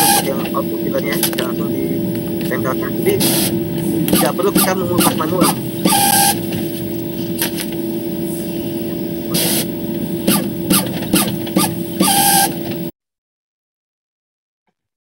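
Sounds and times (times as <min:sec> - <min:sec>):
rushes of noise: 0:00.0 - 0:12.7
label printer humming: 0:00.0 - 0:12.9
quick printer clicks: 0:09.3 - 0:12.9.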